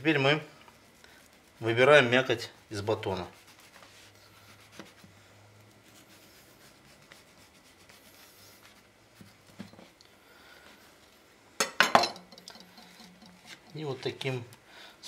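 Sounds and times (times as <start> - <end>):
knife scratching through bread: 0.7 - 9.6.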